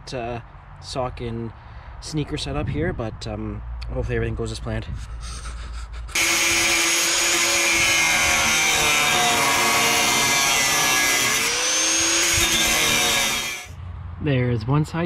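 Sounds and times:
angle grinder cutting metal: 6.2 - 13.7.

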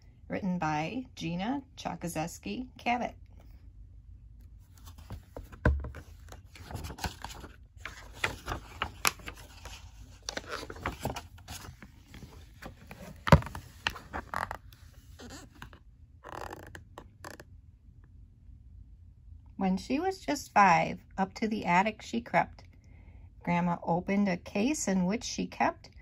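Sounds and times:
paper rustling: 4.7 - 15.8
book pages turning: 4.7 - 17.4.

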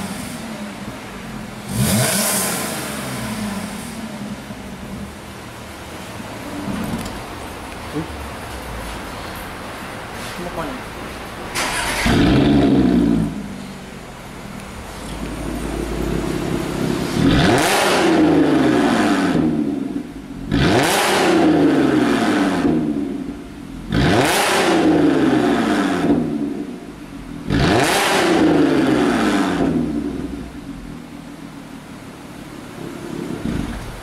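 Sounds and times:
car engine revving: 0.0 - 8.2, 11.3 - 31.1, 32.3 - 34.0.

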